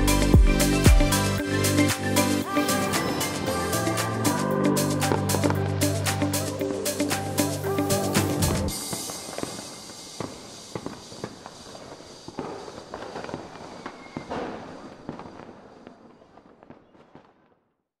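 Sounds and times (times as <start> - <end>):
fireworks pops and bangs: 8.2 - 17.9
hiss: 8.7 - 15.9.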